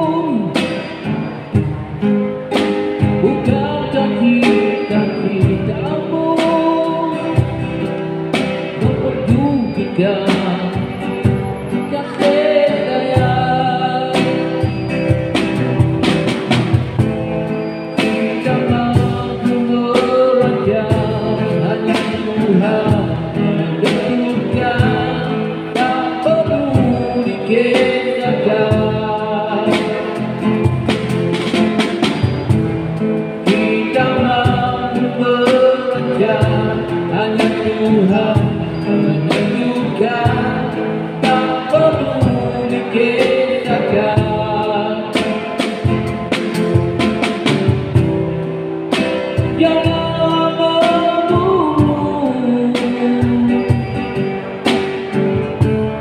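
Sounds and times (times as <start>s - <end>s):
man singing: 0.0s - 1.1s, 3.0s - 15.2s, 18.2s - 30.9s, 33.4s - 46.0s, 49.2s - 56.0s
amplified acoustic guitar strumming: 0.0s - 56.0s
drum and cymbal hits: 14.1s - 20.2s, 29.6s - 44.5s, 45.1s - 52.0s.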